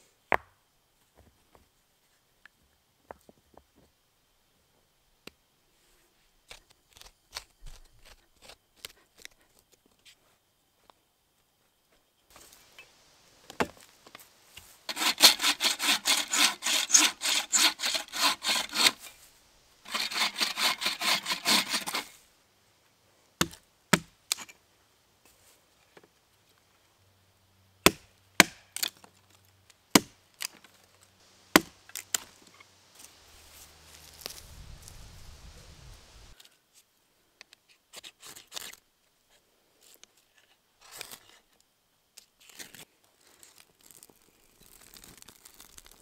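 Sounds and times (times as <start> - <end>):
hand saw sawing wood: 14.9 - 19.2, 19.8 - 22.2
hatchet chopping wood: 23.4 - 24.2, 27.9 - 28.9, 30.0 - 30.2, 31.5 - 32.3.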